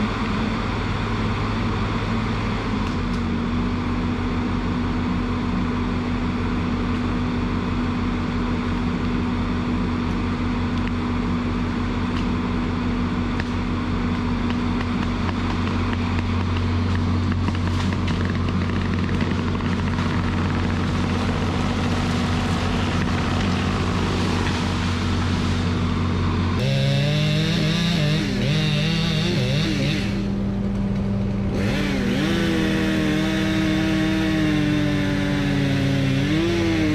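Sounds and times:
diesel engine under load: 0:00.0 - 0:36.9
saw head cutting tree: 0:13.3 - 0:36.9.

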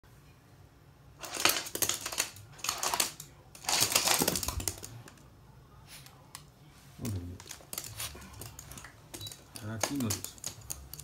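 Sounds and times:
dog claws clicking on wooden floor: 0:01.2 - 0:05.2, 0:07.4 - 0:11.0.

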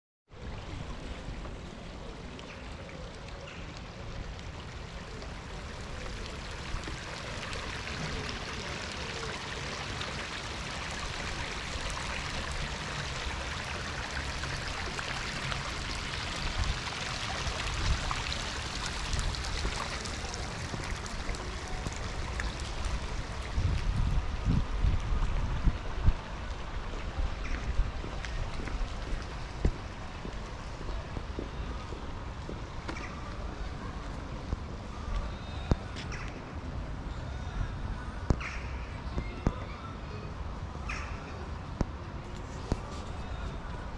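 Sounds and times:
fountain water splashing: 0:00.4 - 0:37.0
wind buffeting microphone: 0:17.5 - 0:32.8.

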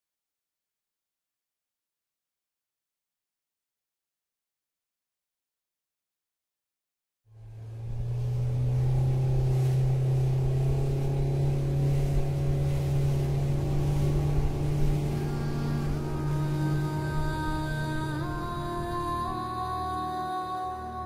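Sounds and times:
motorboat engine running: 0:07.3 - 0:21.0
soft musical tones: 0:07.3 - 0:21.0.

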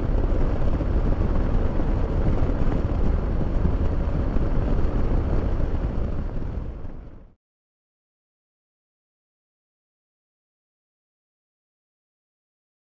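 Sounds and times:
wind rushing over microphone: 0:00.0 - 0:07.3.

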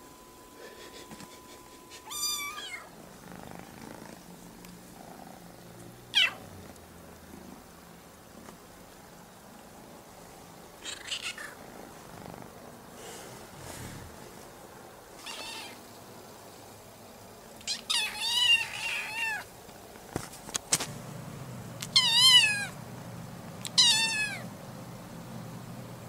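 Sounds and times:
kitten meowing: 0:02.0 - 0:02.9, 0:06.2 - 0:06.4, 0:15.2 - 0:15.8, 0:17.7 - 0:19.4, 0:21.9 - 0:22.8, 0:23.6 - 0:24.5.

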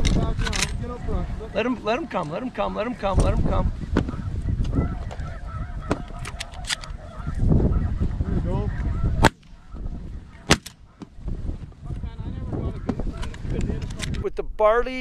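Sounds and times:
geese honking: 0:00.8 - 0:13.5
shotgun shots: 0:09.2 - 0:09.6, 0:10.4 - 0:10.8.

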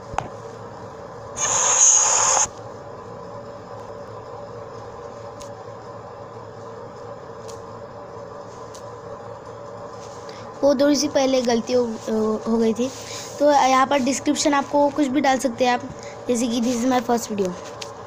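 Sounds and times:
steady low hum: 0:00.0 - 0:18.0
loud hiss: 0:01.4 - 0:02.5.

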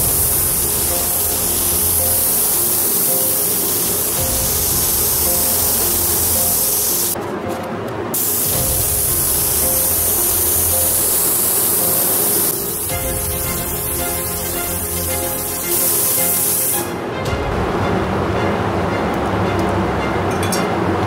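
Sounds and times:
paint spray gun hissing: 0:00.0 - 0:07.2, 0:08.1 - 0:17.0
background music: 0:00.0 - 0:21.0.

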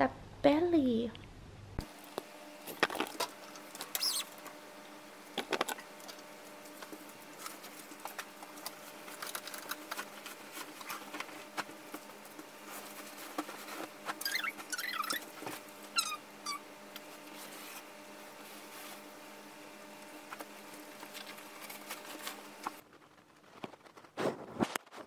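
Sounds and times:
steady low hum: 0:00.0 - 0:24.6
short high squeaks: 0:03.8 - 0:04.4, 0:14.2 - 0:15.3, 0:15.9 - 0:16.6.

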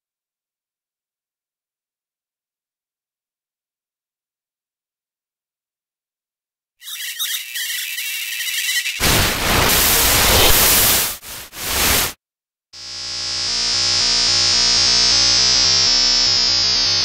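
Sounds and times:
high electrical crackle: 0:06.9 - 0:12.2
harsh static burst: 0:07.5 - 0:12.2.

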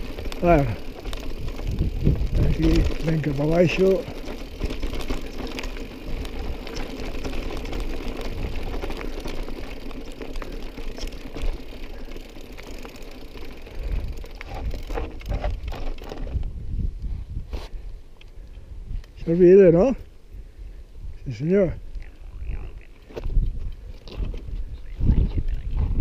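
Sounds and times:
wind rumbling on microphone: 0:00.0 - 0:11.7, 0:13.5 - 0:26.0
tyres crunching on gravel: 0:00.0 - 0:16.3
bike rattling and clicking: 0:00.0 - 0:16.6, 0:21.8 - 0:26.0.

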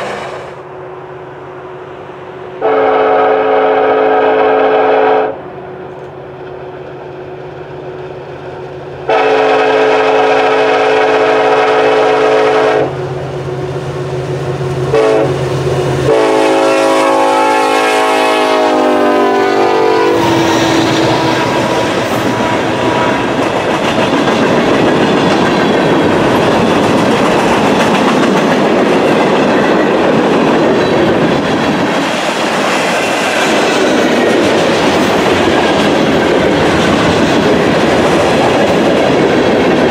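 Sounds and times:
train wheels rumbling on rails: 0:00.0 - 0:00.8, 0:01.4 - 0:39.9
train horn blasts: 0:02.6 - 0:05.5, 0:09.0 - 0:13.0, 0:14.9 - 0:15.4, 0:16.0 - 0:23.4.

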